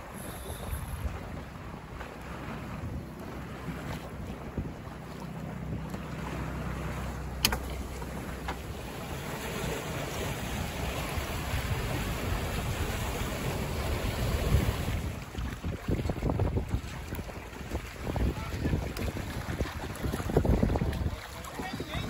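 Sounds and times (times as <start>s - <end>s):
water splashing against hull: 0.0s - 22.0s
wind buffeting microphone: 0.0s - 22.0s
sharp click: 7.4s - 7.7s.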